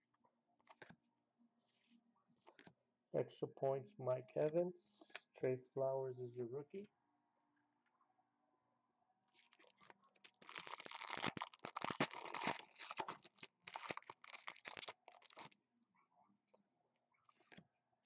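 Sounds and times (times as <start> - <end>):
foil wrapper tearing and crinkling: 9.4 - 15.6.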